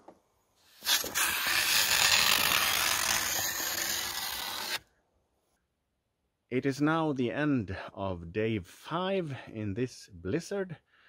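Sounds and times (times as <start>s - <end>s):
hand tool scraping ice: 0.7s - 4.8s.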